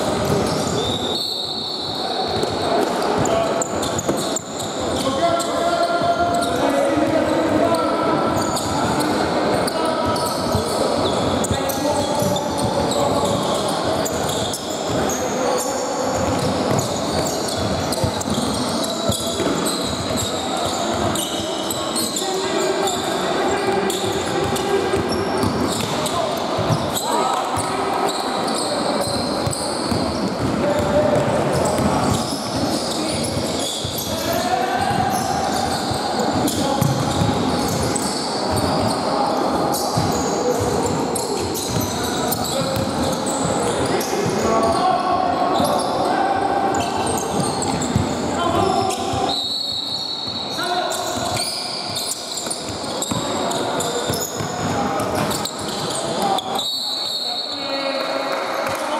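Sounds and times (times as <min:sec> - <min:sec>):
shoes squeaking on wooden court: 0:00.0 - 0:57.8
players' voices echoing: 0:00.0 - 0:58.9
basketball bouncing: 0:24.5 - 0:27.0, 0:29.4 - 0:34.1, 0:36.4 - 0:38.0, 0:47.3 - 0:49.0.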